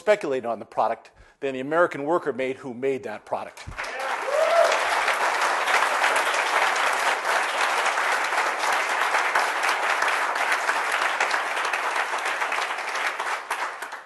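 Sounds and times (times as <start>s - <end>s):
audience applauding: 3.7s - 14.0s.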